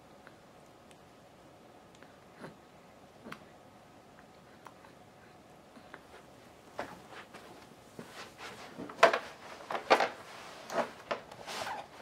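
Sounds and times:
baby clothes and bedding rustling: 0:06.0 - 0:12.0.

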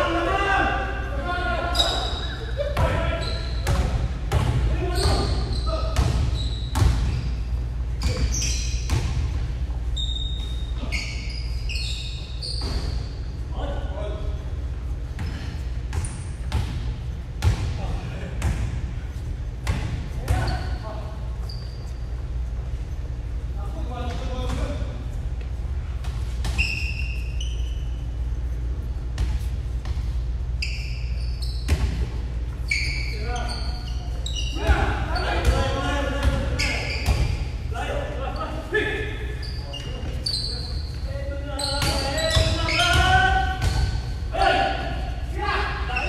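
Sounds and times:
sneakers squeaking on gym floor: 0:01.0 - 0:46.0
basketball bouncing: 0:03.6 - 0:05.4, 0:41.8 - 0:44.1.

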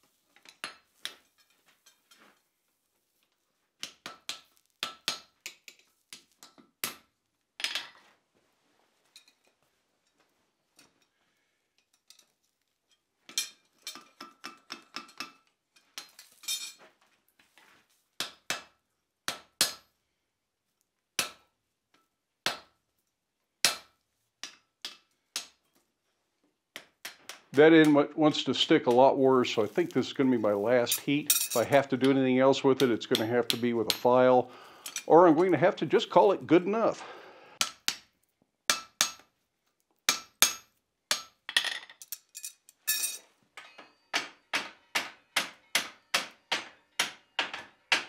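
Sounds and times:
hammer striking steel on anvil: 0:19.3 - 0:19.9, 0:23.6 - 0:25.6, 0:32.8 - 0:34.3, 0:37.6 - 0:38.0, 0:38.7 - 0:39.3, 0:40.1 - 0:41.4, 0:43.0 - 0:48.0.

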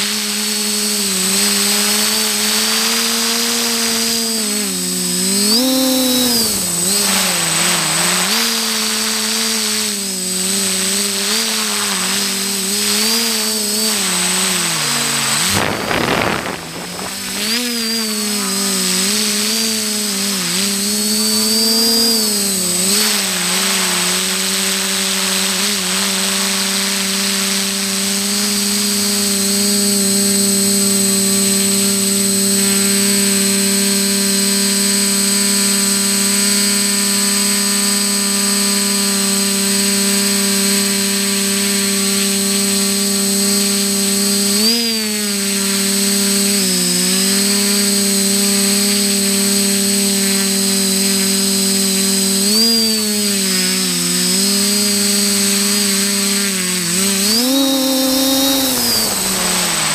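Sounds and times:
drone motors buzzing hum: 0:00.0 - 0:59.9
rushing noise: 0:15.0 - 0:17.9.

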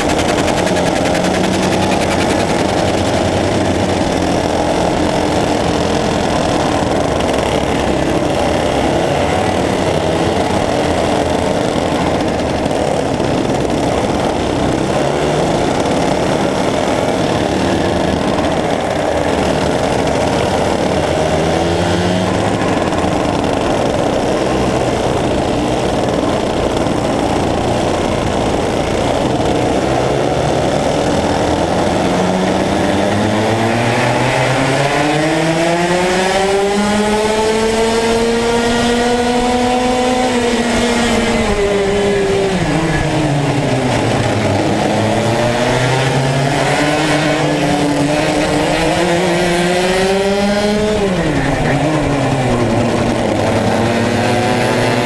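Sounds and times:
go-kart engines racing: 0:00.0 - 0:55.0
single engine revving: 0:27.0 - 0:55.0.

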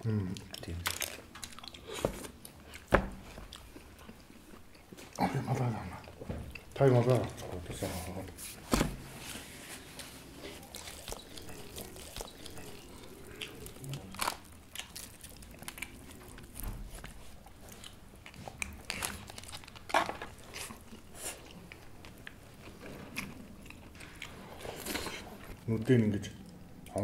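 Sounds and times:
people chewing and biting: 0:00.0 - 0:08.2, 0:09.8 - 0:25.7
crunches and clicks of bones: 0:10.6 - 0:17.2.

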